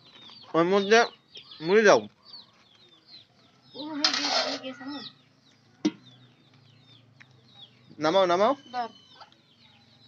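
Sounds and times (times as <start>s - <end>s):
chickens clucking: 0.0s - 10.0s
rattling in metal pot: 4.0s - 4.7s.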